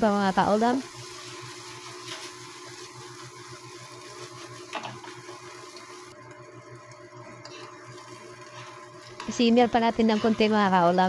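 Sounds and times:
induction cooktop hum: 0.0 - 11.0
wooden spatula scraping wok: 0.8 - 6.0, 7.3 - 11.0.

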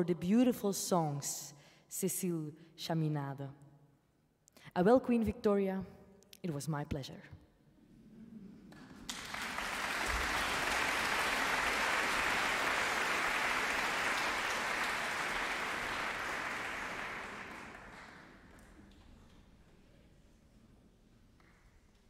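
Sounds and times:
audience applause: 8.7 - 18.8.

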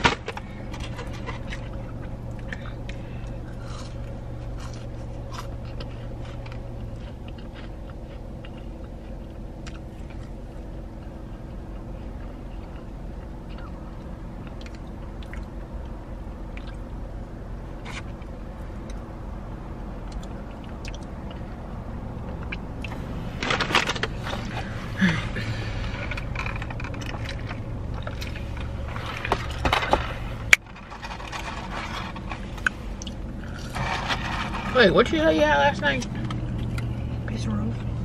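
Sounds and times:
low hum inside car: 0.0 - 38.0
chewing: 0.6 - 17.0, 20.0 - 23.2, 24.1 - 34.7, 36.0 - 37.1
packaging rustling and scraping: 25.8 - 34.8.

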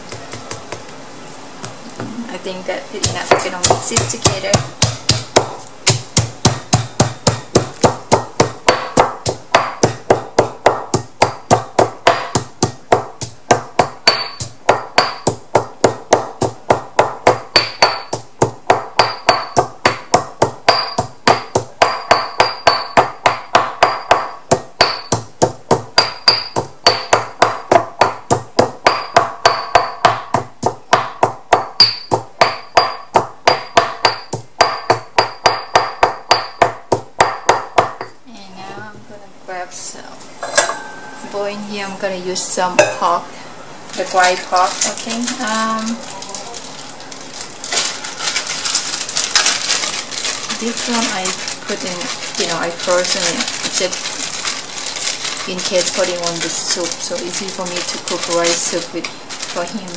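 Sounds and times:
stone pestle pounding in mortar: 3.0 - 38.2.

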